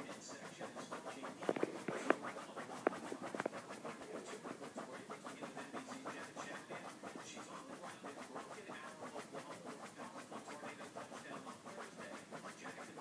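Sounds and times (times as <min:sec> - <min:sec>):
dog gnawing on bone: 0:01.4 - 0:04.9.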